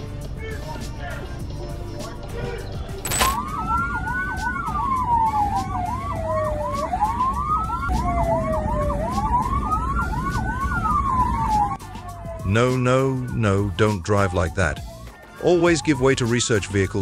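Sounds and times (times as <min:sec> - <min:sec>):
low road rumble: 0:01.0 - 0:17.0
electronic siren wail and yelp: 0:03.1 - 0:17.0.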